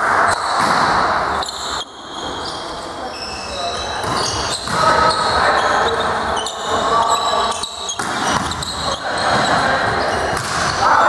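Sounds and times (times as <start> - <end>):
volleyball hits: 0.0 - 1.6, 3.9 - 5.5, 7.5 - 11.0.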